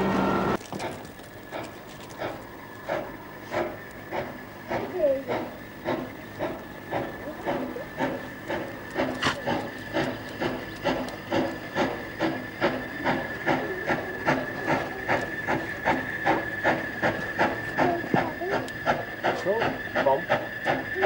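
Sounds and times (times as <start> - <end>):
steam locomotive exhaust beats: 0.0 - 21.0.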